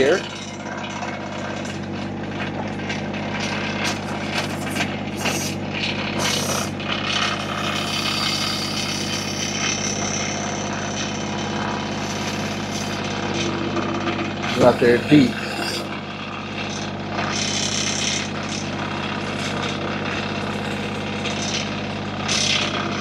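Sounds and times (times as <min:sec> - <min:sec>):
high hydraulic whine: 0:00.0 - 0:23.0
tractor diesel engine under load: 0:00.0 - 0:23.0.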